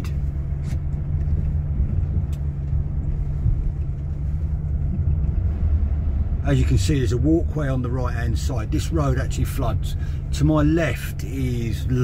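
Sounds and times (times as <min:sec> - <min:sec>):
van engine and road drone: 0:00.0 - 0:12.0.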